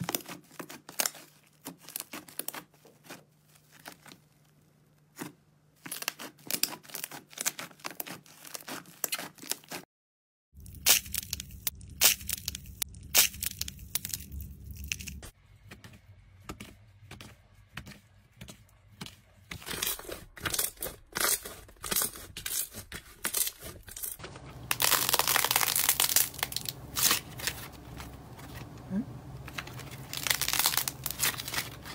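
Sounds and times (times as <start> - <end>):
slime tearing crackle: 19.7 - 28.8, 29.5 - 31.9.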